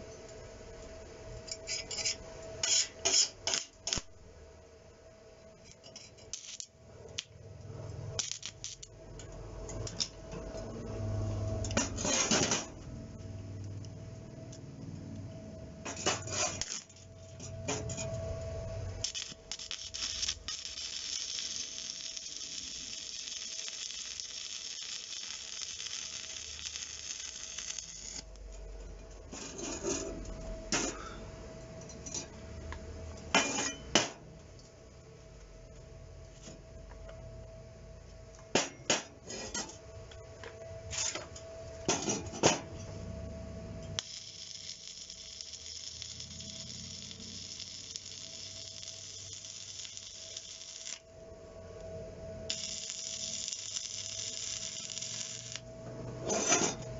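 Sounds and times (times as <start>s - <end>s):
welding arc crackling: 2.6s - 4.2s, 6.0s - 9.2s, 15.8s - 28.4s, 43.9s - 51.1s, 52.4s - 55.7s.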